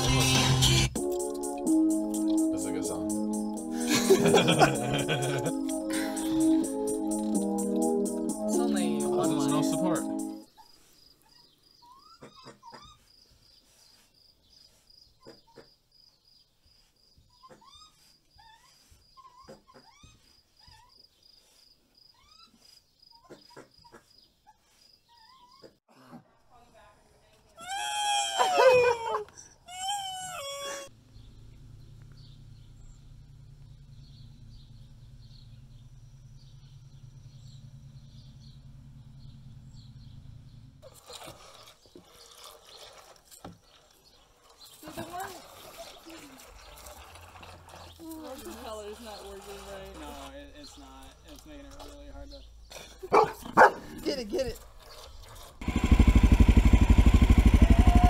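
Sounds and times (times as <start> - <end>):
raccoon squealing: 17.3 - 21.0, 22.1 - 24.0, 27.6 - 31.0
steady low hum: 31.0 - 40.8
cricket chirping: 31.2 - 40.7.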